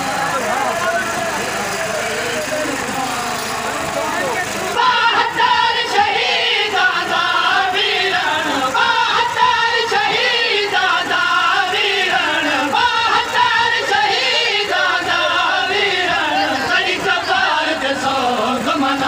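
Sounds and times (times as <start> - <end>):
men chanting a mourning lament: 0.0 - 19.0.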